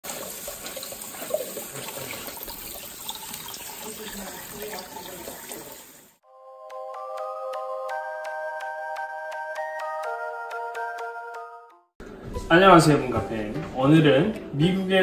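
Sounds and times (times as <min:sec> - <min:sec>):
faucet spray running: 0:00.0 - 0:06.2
chiming music: 0:06.3 - 0:11.9.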